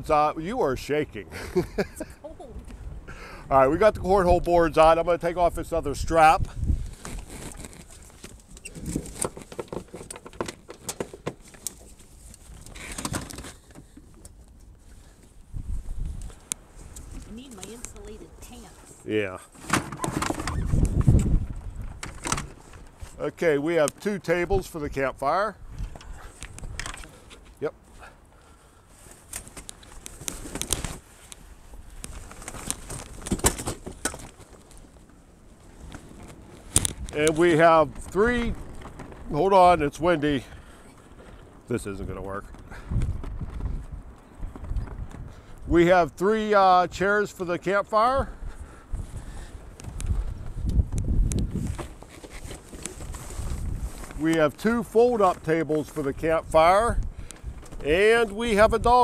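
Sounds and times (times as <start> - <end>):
wind rumbling on microphone: 2.4 - 10.0, 14.7 - 18.7, 19.9 - 23.2, 24.4 - 27.2, 35.6 - 46.1, 48.1 - 59.0
rustle: 5.8 - 59.0
clicks and rattles of gear: 6.4 - 15.3, 19.6 - 23.2, 25.8 - 27.7, 29.0 - 39.9, 40.6 - 45.4, 49.4 - 56.1, 56.9 - 59.0.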